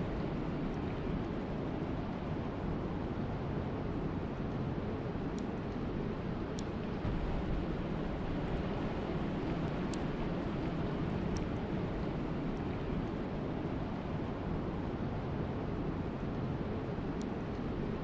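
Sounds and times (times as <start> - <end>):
wind and rain rushing: 6.7 - 16.0
faint drop ticks: 9.6 - 10.1, 17.2 - 17.6.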